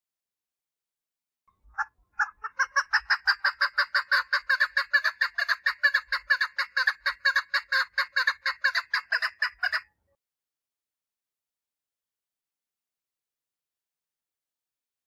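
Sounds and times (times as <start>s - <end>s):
partridge calling: 1.6s - 9.8s.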